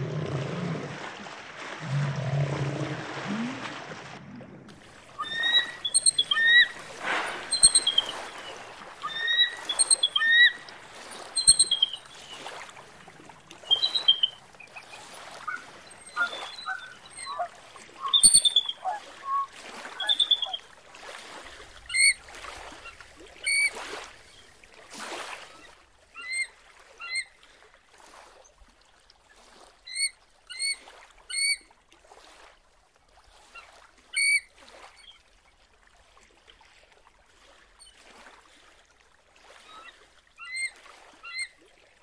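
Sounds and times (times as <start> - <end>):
low rumbling watery sound: 0.0 - 42.0
eagle piping chirps: 5.0 - 12.5, 13.6 - 20.6.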